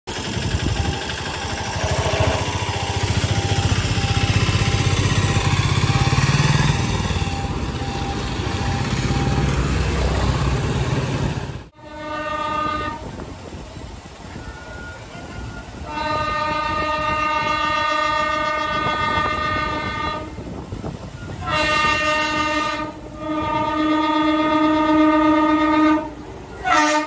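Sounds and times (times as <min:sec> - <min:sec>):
vehicle engines rumbling: 0:00.1 - 0:24.5
distant train horn: 0:00.7 - 0:10.8, 0:11.7 - 0:13.2, 0:14.4 - 0:20.6, 0:21.2 - 0:27.0.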